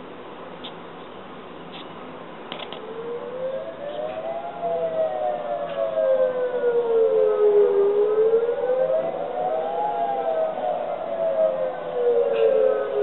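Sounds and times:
warning siren wailing: 2.8 - 13.0.

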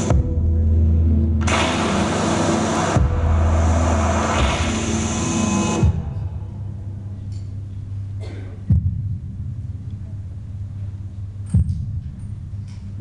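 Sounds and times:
electronic ambient music: 0.0 - 13.0
deep heartbeat-like booms: 3.0 - 5.0, 8.6 - 9.8.

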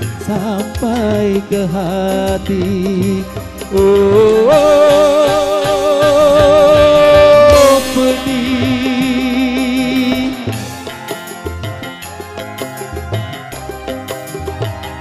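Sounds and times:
keyboard bass and drums: 0.0 - 15.0
held vibrato vocal note: 4.0 - 11.3.

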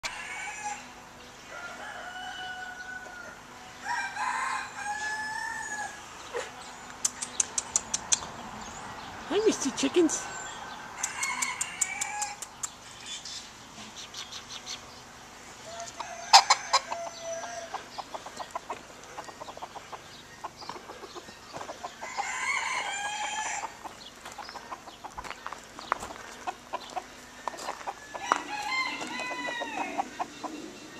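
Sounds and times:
rooster crowing: 0.0 - 6.1, 10.7 - 12.4, 15.6 - 17.9, 21.8 - 23.9, 27.2 - 30.4
chickens clucking: 6.1 - 8.5, 15.6 - 30.9.

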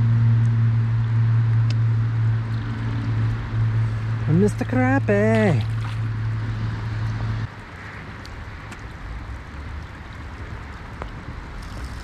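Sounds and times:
wind rumble on microphone: 0.0 - 12.0
river flowing: 1.9 - 12.0
light rain: 6.8 - 12.0.

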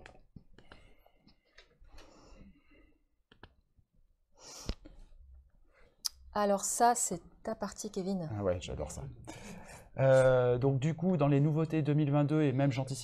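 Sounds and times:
breath into microphone: 4.4 - 5.1.

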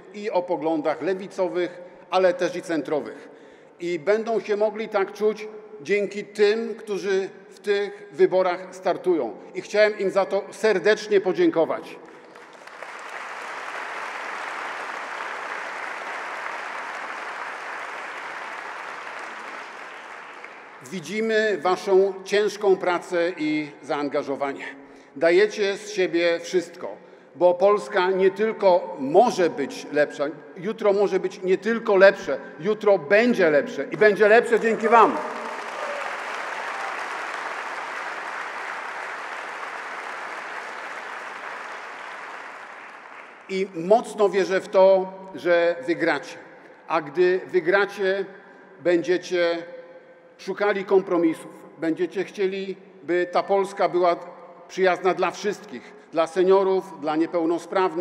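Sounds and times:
audience applauding: 12.0 - 20.9, 34.5 - 43.5.

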